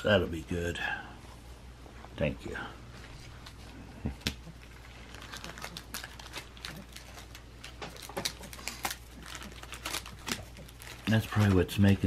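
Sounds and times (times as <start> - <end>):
plastic bag crinkling: 4.4 - 12.0.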